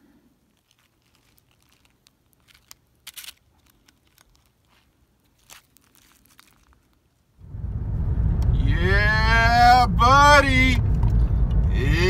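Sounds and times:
tortilla crackling and crunching: 0.4 - 7.3.

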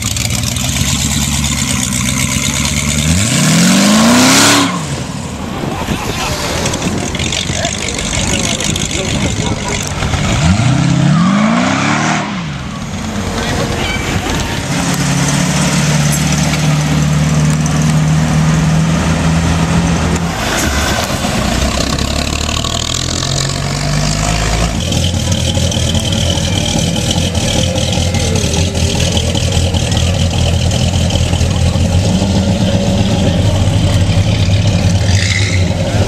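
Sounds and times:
car engines running at low revs: 0.0 - 11.1, 12.2 - 36.0
crowd chatter: 4.9 - 11.0, 12.3 - 18.1, 21.1 - 36.0.

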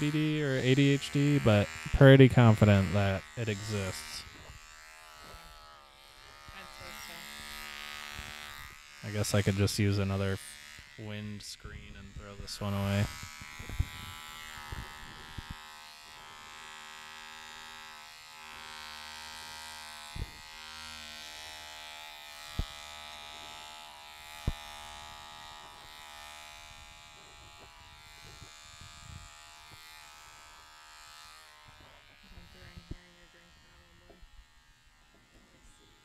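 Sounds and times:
hair clippers buzzing: 0.0 - 36.0.

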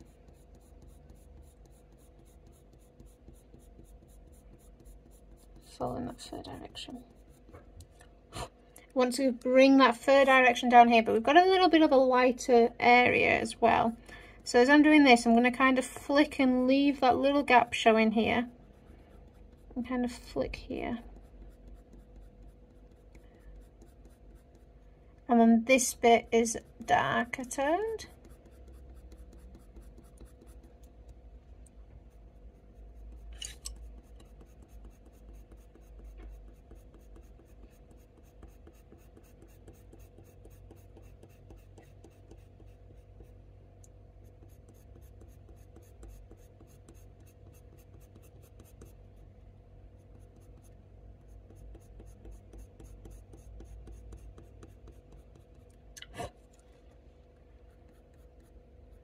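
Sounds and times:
pencil scratching on paper: 0.0 - 7.8, 17.0 - 24.8, 25.8 - 31.2, 32.0 - 43.4, 44.1 - 49.0, 50.0 - 55.7, 57.4 - 59.0.

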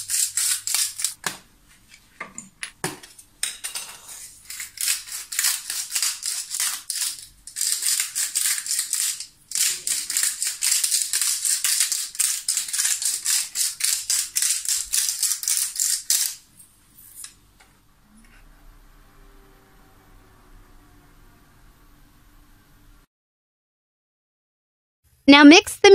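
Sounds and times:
spice grinder clicking: 4.5 - 16.4.

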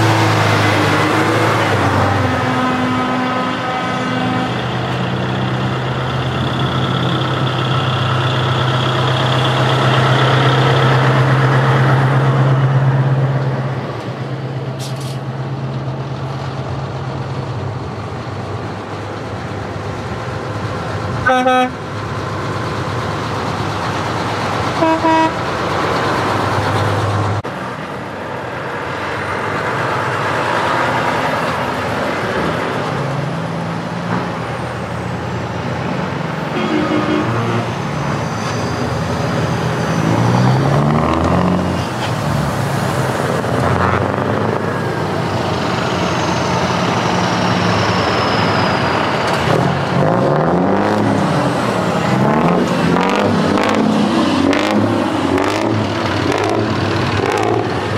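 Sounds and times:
heavy truck diesel engines passing: 0.0 - 57.9
truck horn toots: 2.0 - 4.9, 21.2 - 21.8, 24.8 - 25.4, 36.5 - 37.7.

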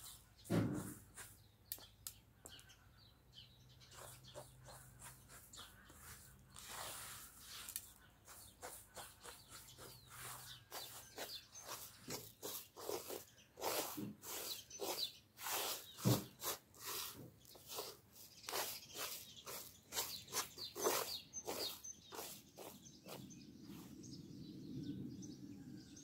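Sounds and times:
rice grains rustling on metal tray: 5.8 - 23.2.

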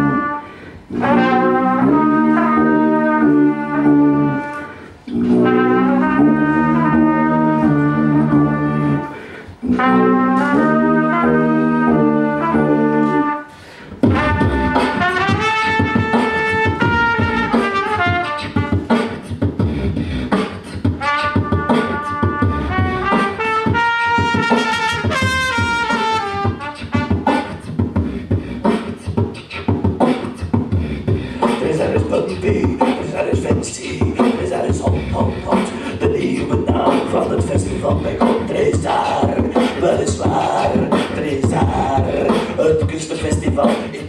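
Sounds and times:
trumpet melody: 0.0 - 19.2, 20.8 - 27.6
beatboxing into a microphone: 0.0 - 44.0.

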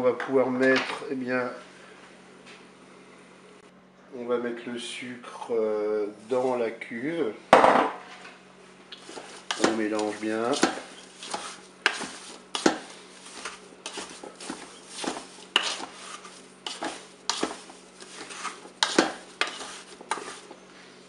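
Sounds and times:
wooden spoon scraping a bowl: 9.0 - 20.6.

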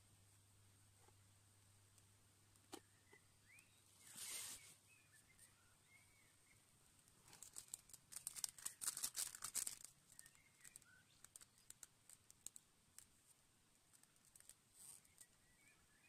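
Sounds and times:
faint bird chirps: 2.7 - 12.6, 14.0 - 16.0
small rustles: 3.9 - 5.6, 7.0 - 15.5
packet crinkling and tearing: 7.3 - 12.6.

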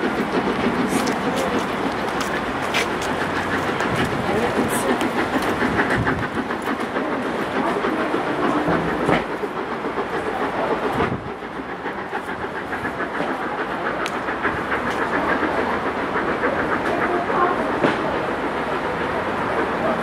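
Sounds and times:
train wheels clattering over rail joints: 0.0 - 20.0.

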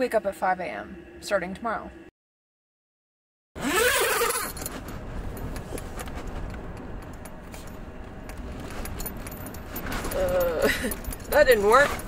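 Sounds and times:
wind buffeting a tent: 3.6 - 12.0
tent fabric rustling and ticking: 3.8 - 12.0.

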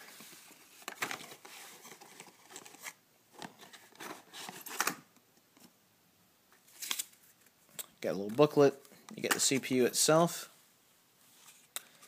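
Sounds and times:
packaging rustling and crinkling: 0.0 - 4.9.

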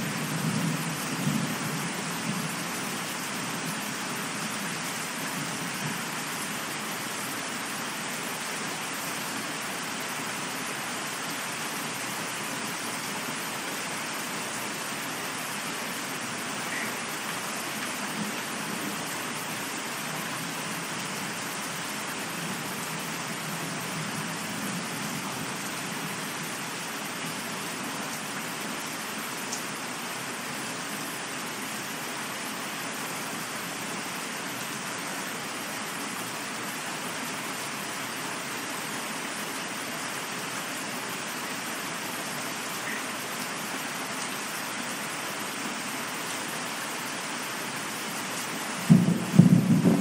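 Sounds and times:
steady rain falling: 0.0 - 50.0
thunder clap rumbling: 48.9 - 50.0.

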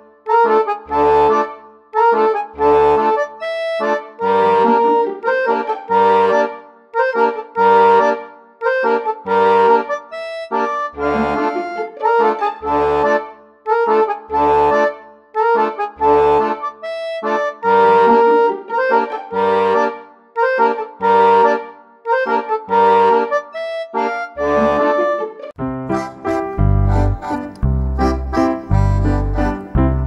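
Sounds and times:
melody over repeating bass: 25.6 - 30.0.

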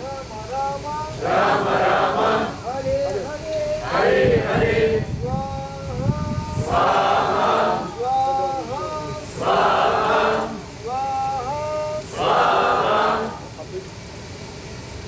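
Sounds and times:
group of voices chanting: 1.2 - 2.7, 3.8 - 5.1, 6.6 - 8.0, 8.9 - 10.7, 12.0 - 13.5
single voice singing mantra: 4.9 - 13.5.

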